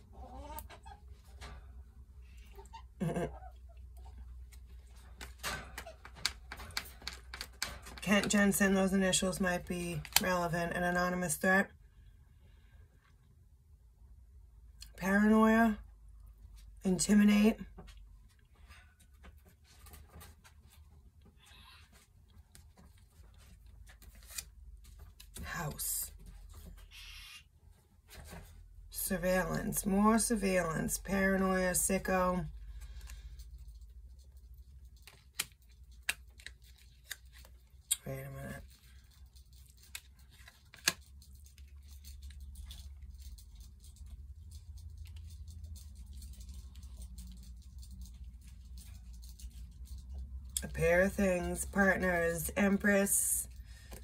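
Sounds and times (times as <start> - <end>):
low steady hum: 0.0 - 54.0
cards clicking and tapping: 5.1 - 8.4, 34.9 - 37.6, 39.8 - 42.0.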